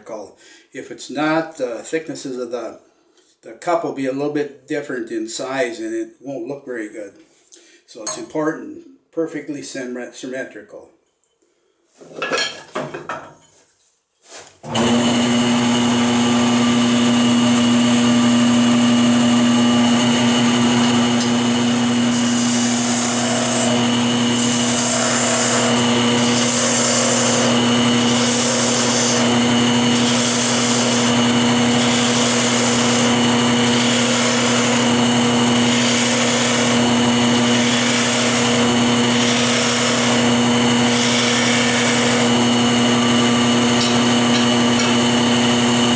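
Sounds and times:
turning tool cutting wood: 0:14.6 - 0:45.9
wood lathe motor hum: 0:14.7 - 0:45.9.

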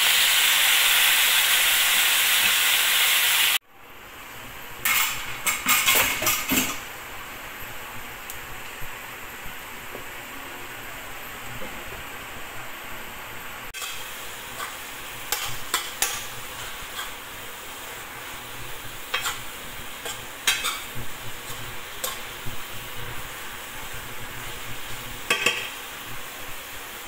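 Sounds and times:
vegetables sizzling in a pan: 0:00.0 - 0:03.6, 0:13.7 - 0:27.0
utensil scraping a pan: 0:13.8 - 0:17.2, 0:19.1 - 0:22.3.

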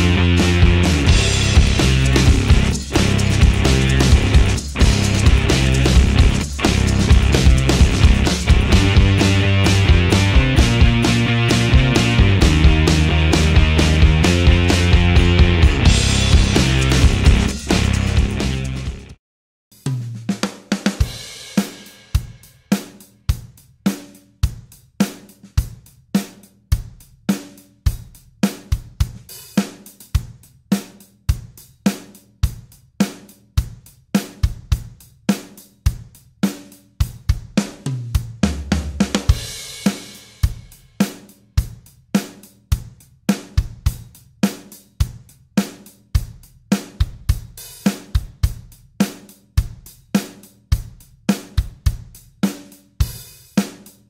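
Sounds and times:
deep bass hit: 0:00.0 - 0:19.1
drum kit beat: 0:00.0 - 0:54.0.

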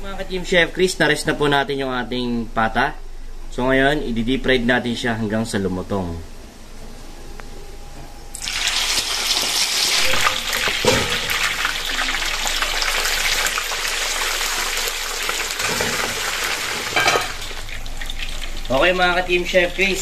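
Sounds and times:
oil sizzling and bubbling: 0:08.3 - 0:19.2.

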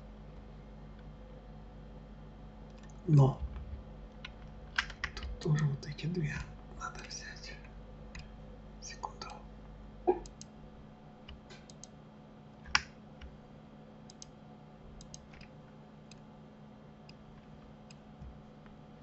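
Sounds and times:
faint steady hum: 0:00.0 - 0:19.0
keyboard keys clicking: 0:02.7 - 0:05.4, 0:15.0 - 0:15.5
computer mouse clicks: 0:10.2 - 0:10.5, 0:11.2 - 0:12.0, 0:14.1 - 0:14.4, 0:15.0 - 0:15.5.

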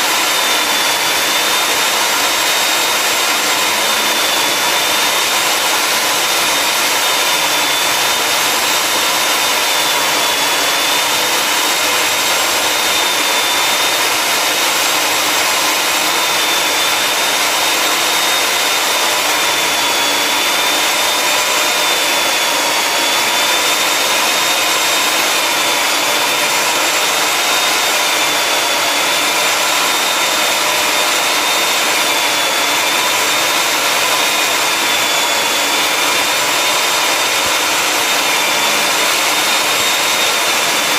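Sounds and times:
core drill motor whining: 0:00.0 - 0:40.9.

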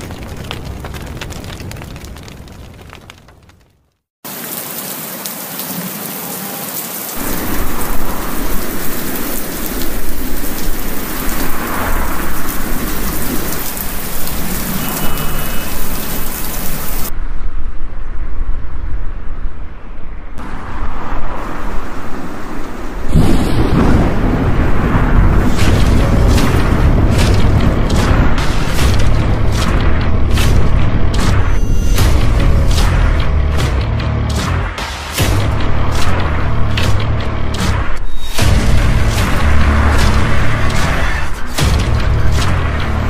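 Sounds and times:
rain hissing: 0:04.2 - 0:17.1
rumbling thunder: 0:23.0 - 0:31.5.

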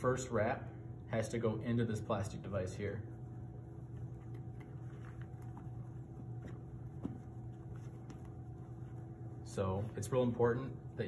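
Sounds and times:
low room hum: 0:00.0 - 0:11.0
bandage ticks and rustles: 0:03.5 - 0:10.0.

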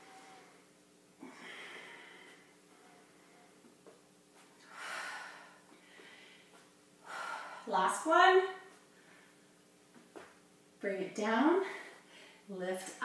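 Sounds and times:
woman breathing heavily: 0:00.0 - 0:03.7, 0:04.6 - 0:07.8, 0:08.8 - 0:09.6, 0:11.6 - 0:12.5
faint steady hum: 0:00.0 - 0:13.0.

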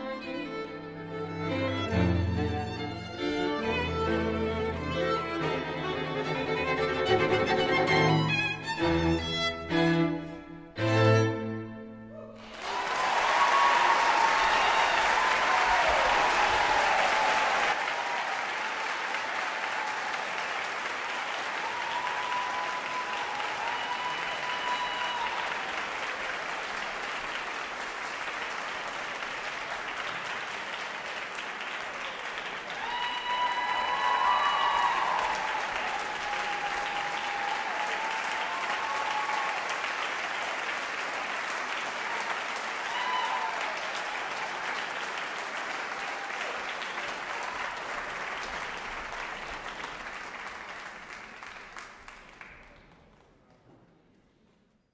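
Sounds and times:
voices cheering: 0:12.2 - 0:20.6, 0:21.3 - 0:26.4, 0:31.6 - 0:41.1, 0:41.8 - 0:48.0
audience applauding: 0:12.4 - 0:53.7.

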